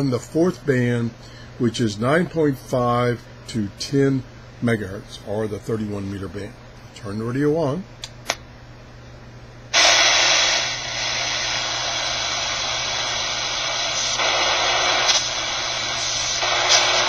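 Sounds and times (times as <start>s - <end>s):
radio static hiss: 9.8s - 17.0s.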